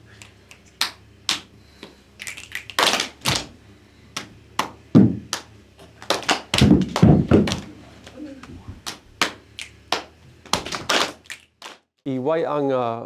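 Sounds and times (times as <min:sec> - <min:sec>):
hand claps: 0:00.1 - 0:03.5, 0:04.2 - 0:11.8
deep body slaps: 0:02.7 - 0:03.5, 0:04.2 - 0:07.7, 0:08.4 - 0:11.2.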